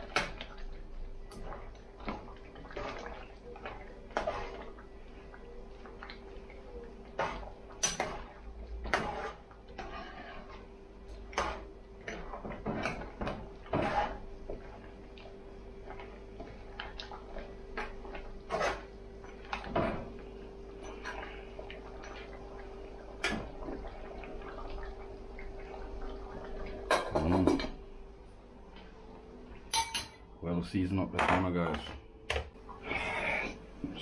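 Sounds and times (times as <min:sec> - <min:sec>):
metal spoon scraping a metal pot: 0:08.8 - 0:10.6.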